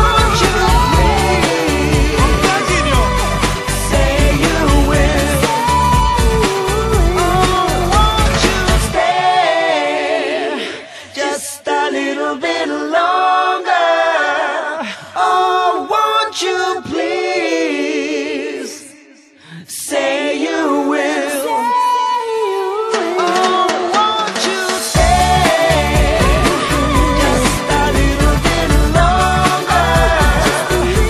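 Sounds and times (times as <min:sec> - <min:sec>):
pop song beat and bass: 0:00.0 - 0:10.9, 0:21.0 - 0:31.0
layered singing voices: 0:00.0 - 0:31.0.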